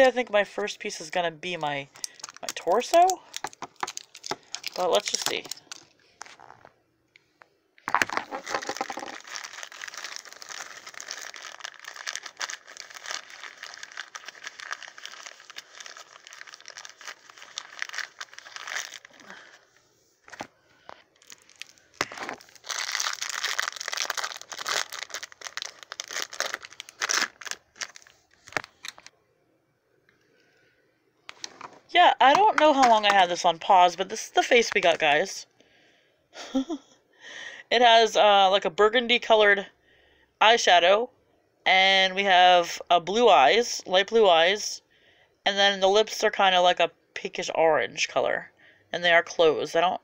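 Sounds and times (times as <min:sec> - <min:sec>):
foil wrapper crinkling and tearing: 0:01.9 - 0:06.6, 0:07.9 - 0:19.6, 0:21.1 - 0:29.1.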